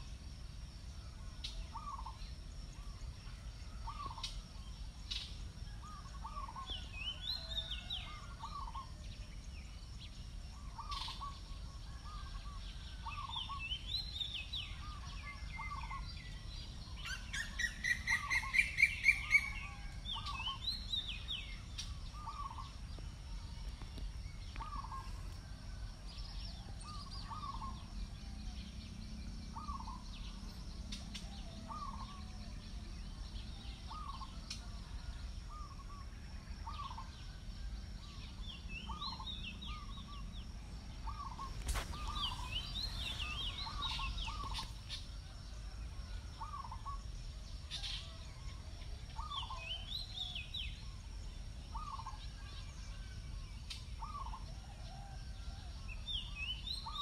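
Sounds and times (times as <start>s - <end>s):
birds chirping: 10.6s - 25.5s, 26.2s - 35.9s, 38.1s - 45.4s, 46.3s - 48.2s, 51.7s - 52.7s
rapid rising bird calls: 41.0s - 45.0s.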